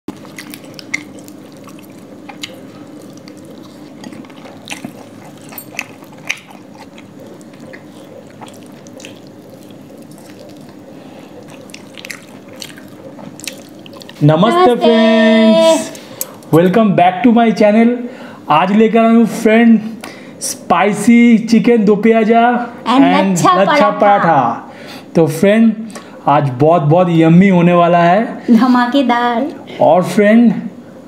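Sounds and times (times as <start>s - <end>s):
wet chewing smacks: 0.1s - 14.2s
steady low hum: 0.1s - 31.0s.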